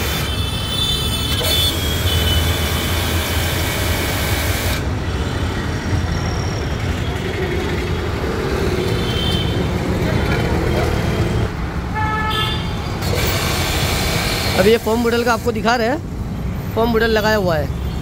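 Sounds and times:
pressure washer motor hum: 1.3 - 4.9, 13.0 - 15.7.

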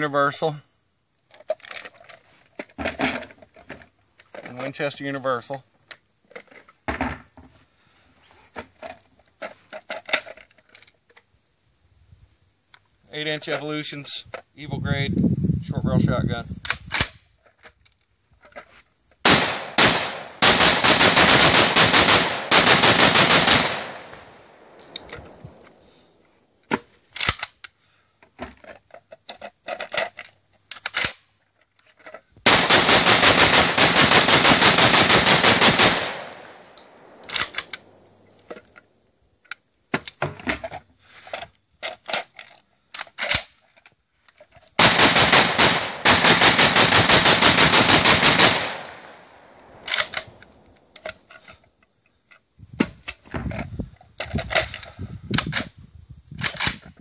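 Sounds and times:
gun handling clicks and knocks: 1.2 - 7.6, 8.3 - 11.4, 12.7 - 14.6, 16.6 - 21.0, 21.6 - 47.2, 48.0 - 57.0
shotgun rapid fire: 19.3 - 25.7, 32.5 - 38.2, 44.8 - 50.4.

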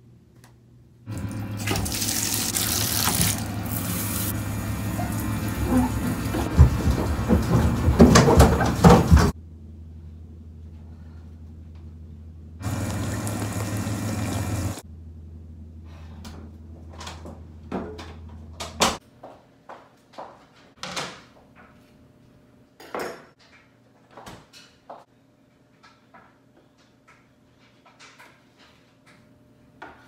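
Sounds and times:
kitchen items knocking and clattering: 5.7 - 9.4
low steady hum: 9.3 - 18.7.

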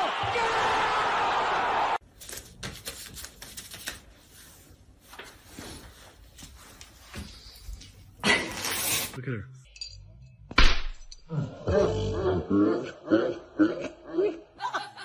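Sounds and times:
football crowd noise on tv: 0.0 - 2.0.

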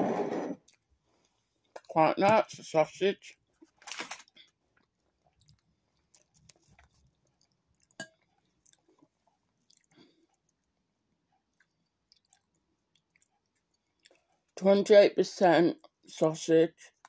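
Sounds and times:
faint chewing: 3.3 - 14.6
wet mouth sounds: 11.5 - 14.6.

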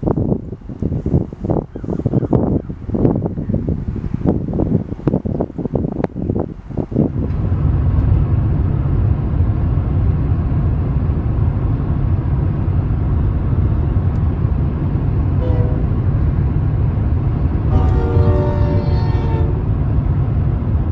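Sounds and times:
car road noise rumble: 0.0 - 20.9
diesel freight train: 0.0 - 20.9
wind buffeting microphone: 0.0 - 20.9
locomotive horn: 15.4 - 16.1, 17.7 - 19.9.

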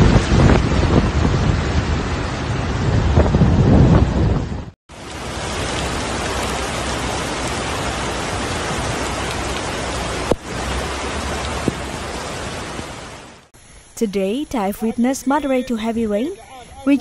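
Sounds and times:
heavy rain and floodwater churning: 0.0 - 13.5.

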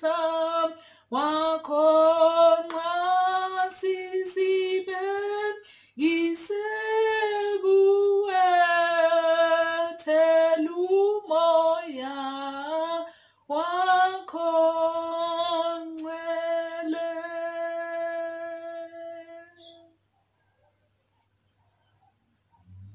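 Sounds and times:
woman singing a hymn: 0.0 - 19.9
woman breathing: 0.8 - 1.1, 5.6 - 6.0, 13.1 - 13.5.

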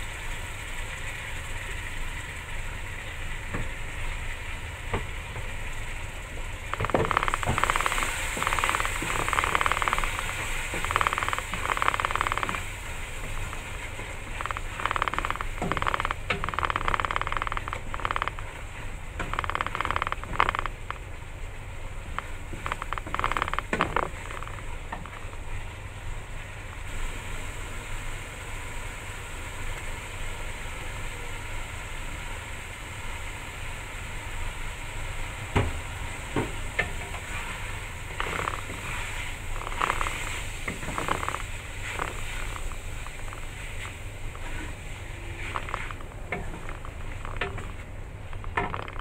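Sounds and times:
spices sizzling in a wok: 0.0 - 14.7, 25.2 - 47.2.

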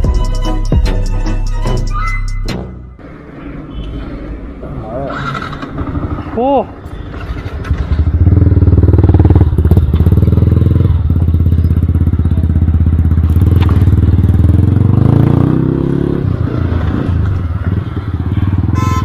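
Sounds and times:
motorcycle engine running: 5.2 - 15.7.

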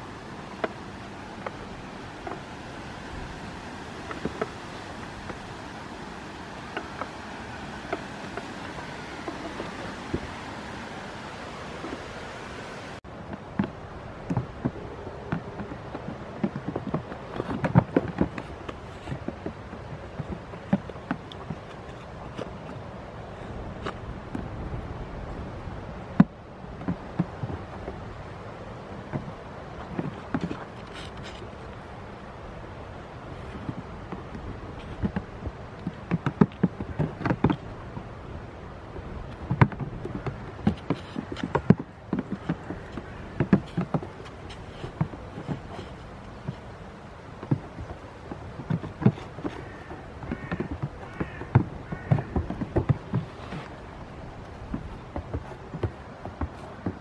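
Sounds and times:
goat hooves on plastic blocks: 0.1 - 12.3, 13.0 - 57.0
hooves knocking on plastic blocks: 33.6 - 37.6, 47.4 - 53.8, 54.4 - 57.0.

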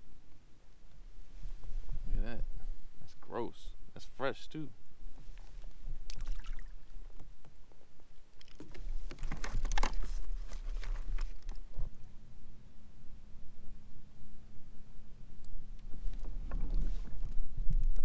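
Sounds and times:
low wind rumble: 0.0 - 18.0
water splashing against kayak: 5.3 - 7.3
steady low hum: 10.0 - 18.0.

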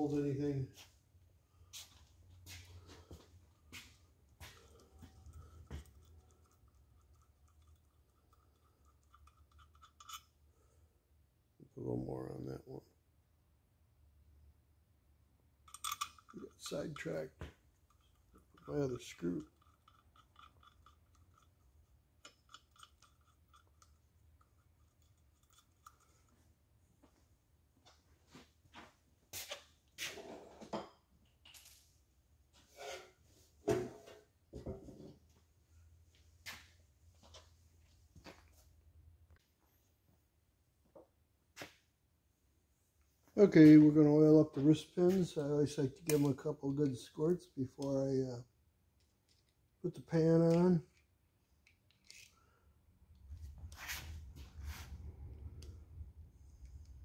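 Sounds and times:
small metal parts clicking: 5.2 - 10.4, 15.7 - 17.1, 17.8 - 26.3, 50.5 - 52.4
tools knocking and clinking: 15.7 - 26.2.

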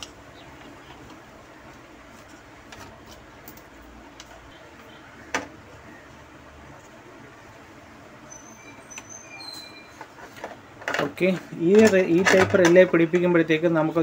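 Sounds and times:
steady background noise: 0.0 - 14.0
relays clicking and tapping: 10.0 - 13.7.

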